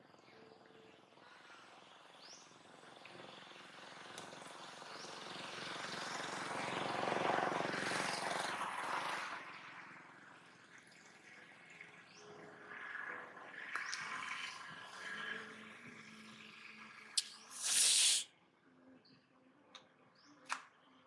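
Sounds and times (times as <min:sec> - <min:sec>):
motor vehicle passing: 0:02.3 - 0:18.2.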